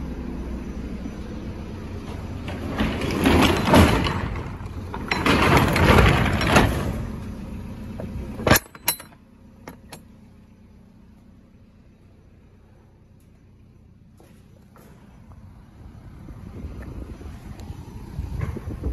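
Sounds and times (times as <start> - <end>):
metal ramp scraping and rattling: 2.0 - 10.0
loud metal clank: 2.5 - 7.2, 8.3 - 10.0.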